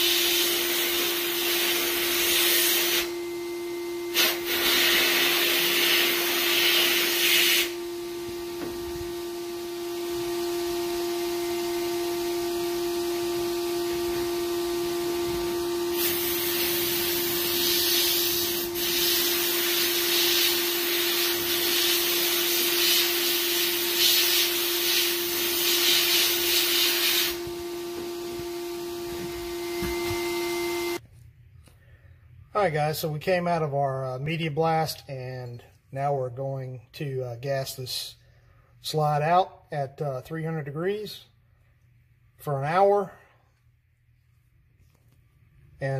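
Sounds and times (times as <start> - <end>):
blast nozzle hissing: 0.0 - 9.6, 10.2 - 31.0
machine motor hum: 7.7 - 19.6, 24.6 - 31.0.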